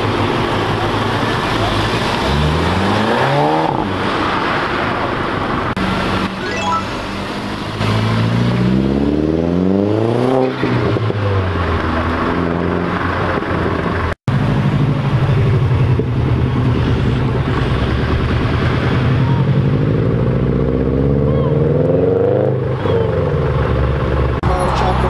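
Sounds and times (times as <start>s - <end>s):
car engine revving: 0.0s - 6.4s, 7.0s - 25.0s
car engine running low: 22.6s - 25.0s.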